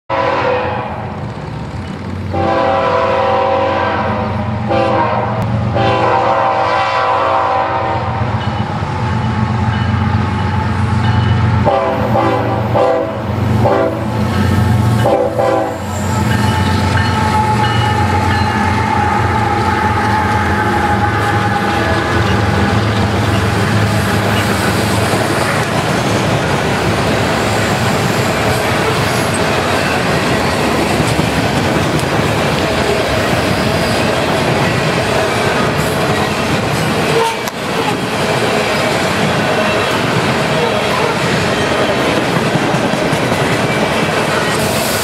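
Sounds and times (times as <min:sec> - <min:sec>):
locomotive air horn blasts: 0:00.1 - 0:01.2, 0:02.3 - 0:08.4, 0:11.5 - 0:23.0, 0:37.1 - 0:37.6
train cars rumbling and clattering: 0:00.1 - 0:45.0.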